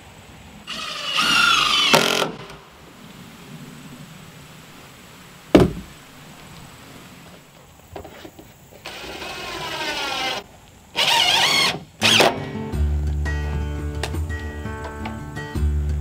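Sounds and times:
tape measure blade whirring: 0:00.7 - 0:02.6, 0:08.8 - 0:10.4, 0:11.0 - 0:12.4
sharp knock: 0:05.6 - 0:05.9.

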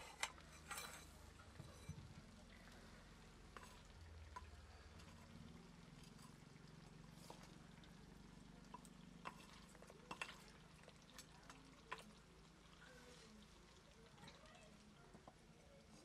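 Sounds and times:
metal spoon scraping clay pot: 0:00.0 - 0:02.7, 0:03.5 - 0:06.5, 0:07.1 - 0:07.6, 0:08.7 - 0:10.6.

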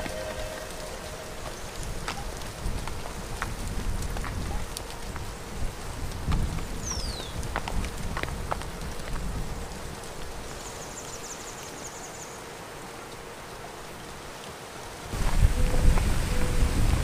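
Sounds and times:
rapid high trill: 0:00.0 - 0:01.9
wind rustling: 0:00.0 - 0:17.0
hoof clicks on gravel: 0:01.4 - 0:11.7.

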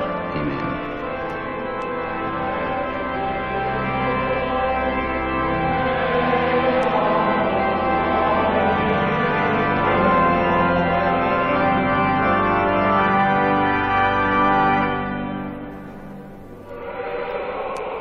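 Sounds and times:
organ playing slow chords: 0:00.0 - 0:17.2.

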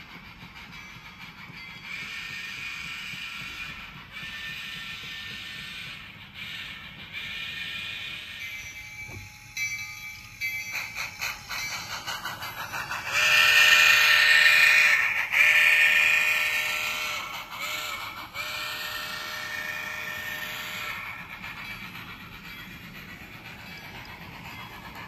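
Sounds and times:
steam locomotive exhaust chuff: 0:00.0 - 0:25.0
chime steam whistle blasts: 0:06.7 - 0:12.1, 0:12.9 - 0:22.0.

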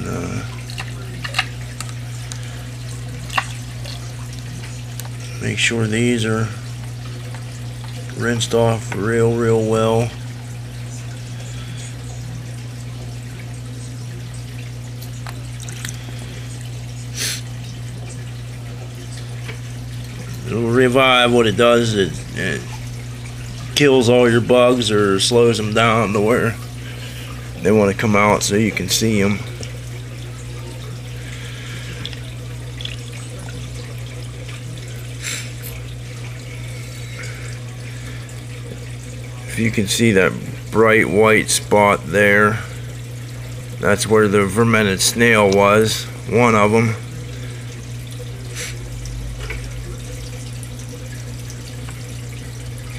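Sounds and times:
steady low hum: 0:00.0 - 0:52.9
water running and trickling: 0:00.0 - 0:52.9
water dripping in plastic container: 0:00.4 - 0:05.3, 0:31.9 - 0:36.3, 0:47.8 - 0:52.9.

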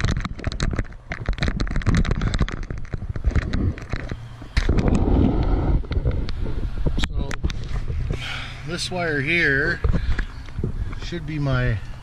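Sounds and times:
camera handling clicks and scrapes: 0:00.0 - 0:06.5
microphone rumble: 0:00.0 - 0:11.8.

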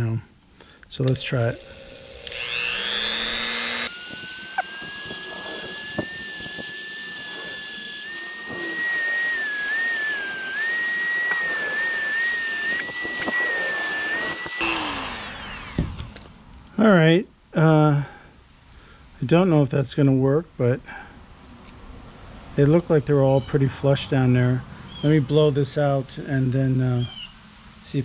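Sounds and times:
rotary tool grinding metal: 0:01.0 - 0:16.2.

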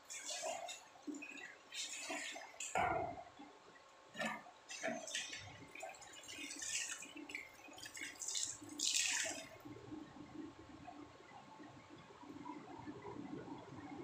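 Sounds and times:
water pouring into bucket: 0:00.0 - 0:02.8, 0:04.2 - 0:09.6
water splashing in plastic bucket: 0:00.0 - 0:03.3, 0:04.2 - 0:09.6.

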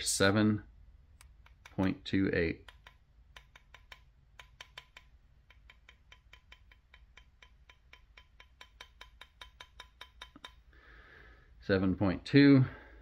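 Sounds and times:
light tapping on small tray: 0:02.6 - 0:10.7.

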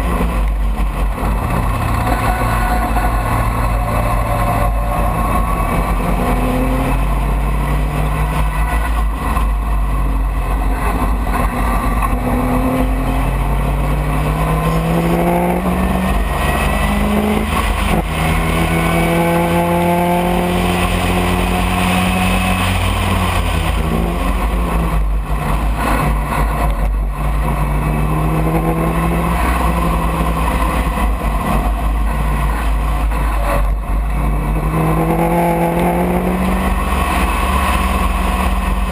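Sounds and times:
racing car engine accelerating: 0:00.0 - 0:38.9.

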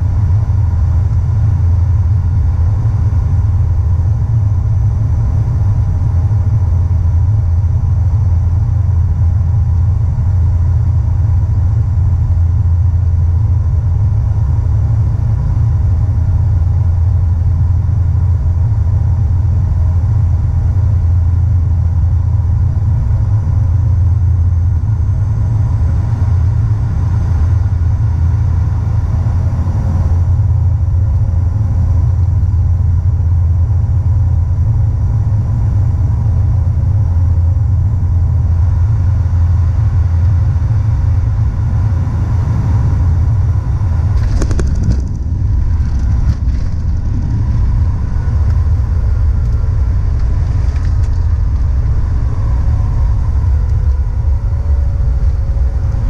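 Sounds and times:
turboprop engines droning: 0:00.0 - 0:56.0
wheels touching down thump: 0:44.1 - 0:51.7.

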